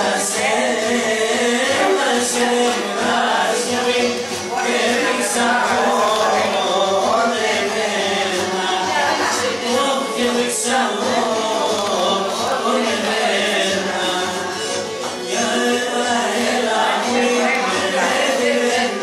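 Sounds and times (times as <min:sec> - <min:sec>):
folk dance music: 0:00.0 - 0:19.0
people singing: 0:00.0 - 0:19.0.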